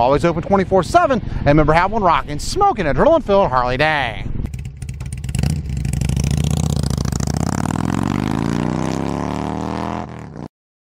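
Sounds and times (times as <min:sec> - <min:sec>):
motorcycle engine revving: 0:04.5 - 0:10.5.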